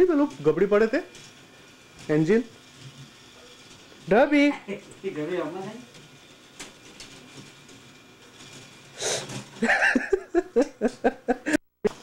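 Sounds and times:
laughter in short bursts: 0:09.6 - 0:12.0.

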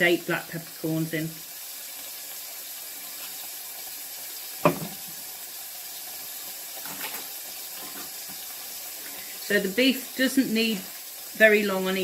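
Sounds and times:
meat sizzling in a pot: 0:00.0 - 0:12.0
knocks on pot: 0:04.6 - 0:05.1.

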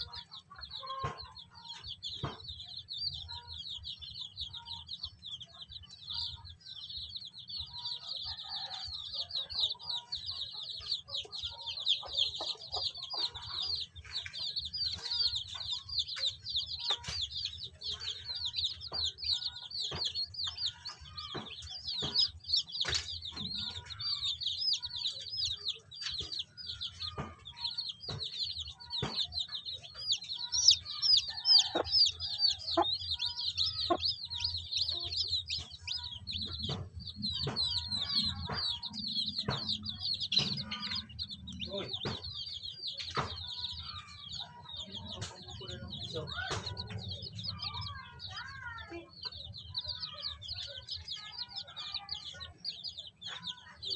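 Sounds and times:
chicks peeping: 0:00.0 - 0:53.9.

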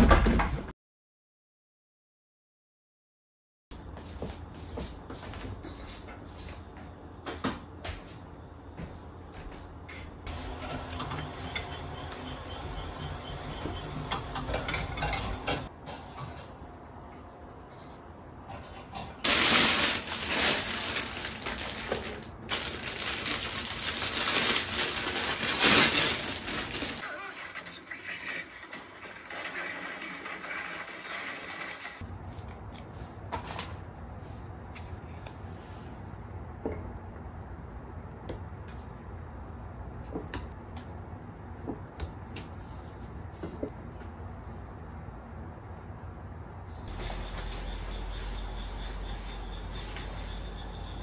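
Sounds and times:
plastic packaging crinkling: 0:19.2 - 0:27.0.

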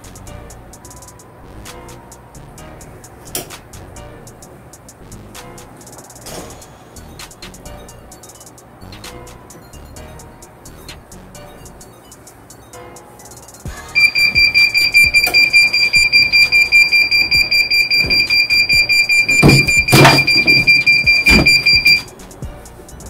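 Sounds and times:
timer alarm beeping rapidly: 0:07.0 - 0:22.1.

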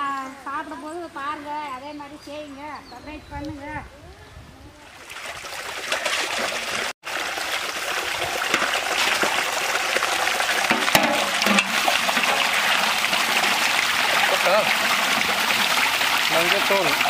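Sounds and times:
water running and splashing: 0:04.9 - 0:17.0
sharp knocks: 0:10.7 - 0:12.8.

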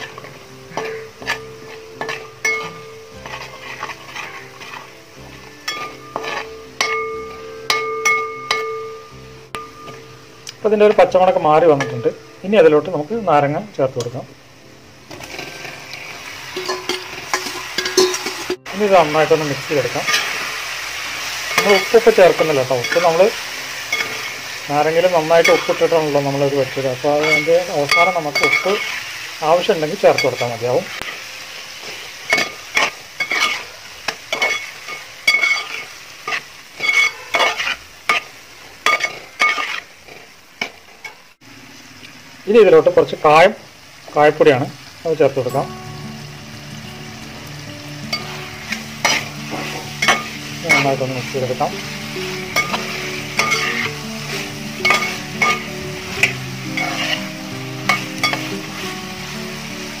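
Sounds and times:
metal spatula scraping a pot: 0:00.0 - 0:05.0, 0:05.6 - 0:08.6, 0:15.1 - 0:18.6, 0:20.0 - 0:20.5, 0:21.4 - 0:29.2, 0:30.0 - 0:41.2, 0:48.1 - 0:51.9, 0:52.5 - 0:58.8
faint sizzle: 0:00.0 - 1:00.0
metal spoon scraping metal pot: 0:00.1 - 0:05.0, 0:05.6 - 0:07.4, 0:32.3 - 0:33.7, 0:34.3 - 0:39.9, 0:52.6 - 0:54.0, 0:54.8 - 0:57.3.

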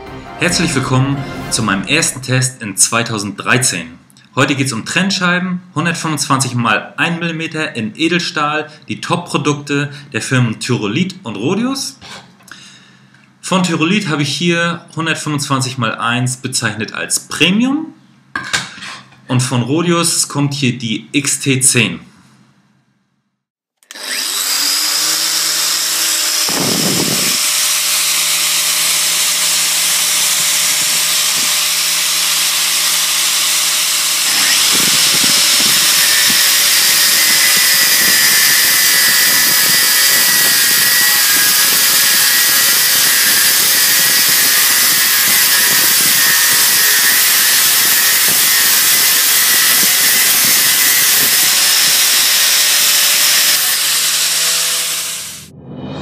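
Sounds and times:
angle grinder cutting steel: 0:23.8 - 0:55.5
high whine: 0:54.6 - 0:56.0.

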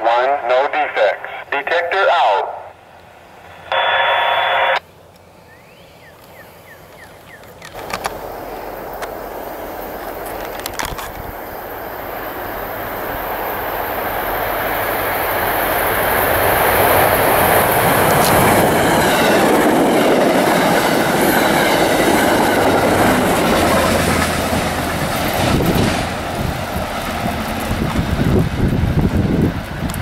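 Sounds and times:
train wheels rumbling on rails: 0:06.9 - 0:30.0.

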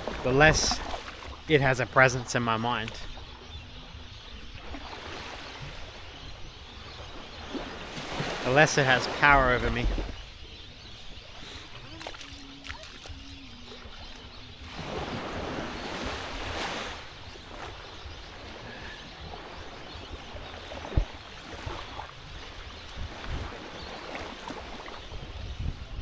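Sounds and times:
small waves washing onto shore: 0:00.0 - 0:03.5, 0:04.2 - 0:26.0
wind rumble on microphone: 0:09.4 - 0:26.0.

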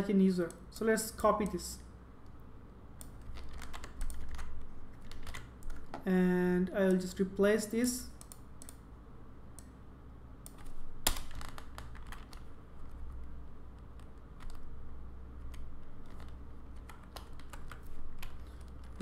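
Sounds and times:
faint low hum: 0:00.0 - 0:19.0
typing on computer keyboard: 0:03.0 - 0:05.9, 0:10.5 - 0:13.2, 0:13.8 - 0:14.7, 0:15.4 - 0:19.0.

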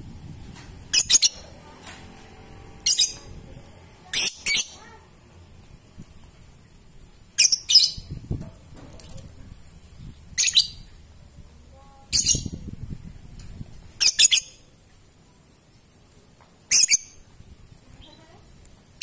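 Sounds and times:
lovebird chattering calls: 0:00.9 - 0:01.4, 0:02.8 - 0:03.2, 0:04.1 - 0:04.9, 0:07.4 - 0:08.1, 0:10.4 - 0:10.9, 0:12.1 - 0:12.6, 0:14.0 - 0:14.6, 0:16.7 - 0:17.2.

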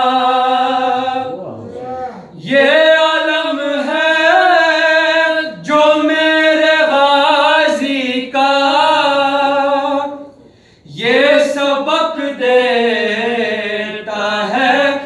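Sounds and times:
man singing unaccompanied: 0:00.0 - 0:01.6, 0:02.3 - 0:10.3, 0:10.9 - 0:15.0
singer breathing: 0:10.4 - 0:10.9.

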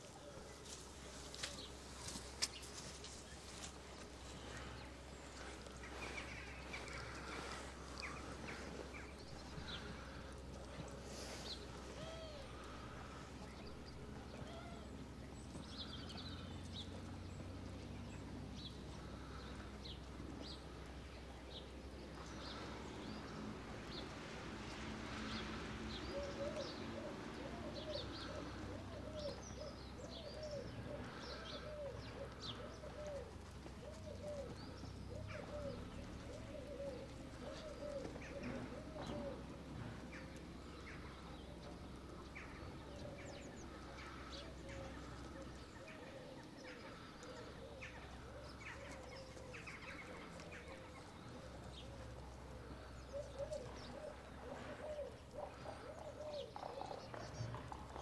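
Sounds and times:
short low arching bird calls: 0:00.0 - 0:24.0, 0:25.3 - 0:58.0
small birds chirping and singing: 0:00.0 - 0:58.0.

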